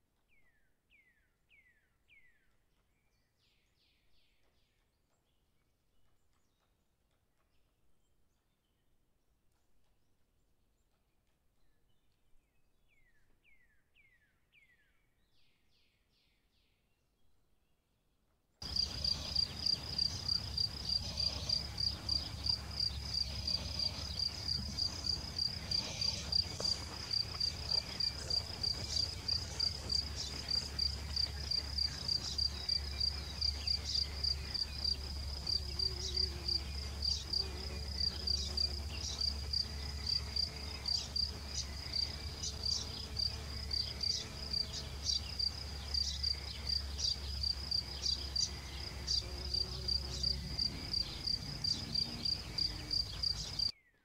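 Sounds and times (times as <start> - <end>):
cricket chirping trill: 18.6 - 53.7.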